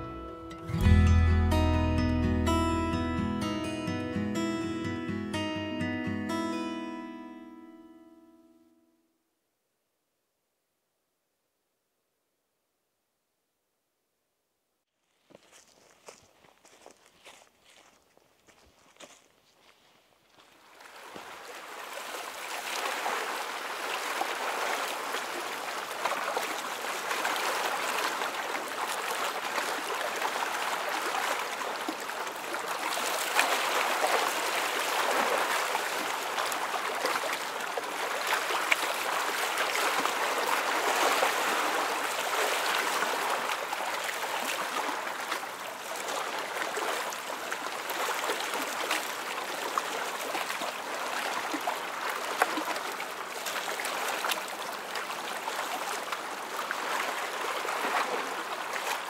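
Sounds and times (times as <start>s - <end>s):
stream water rushing: 0.0s - 6.8s, 20.6s - 59.0s.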